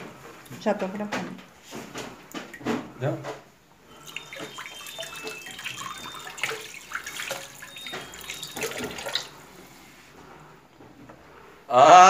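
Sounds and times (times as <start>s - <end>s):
water splashing in a plastic basin: 1.7s - 9.6s.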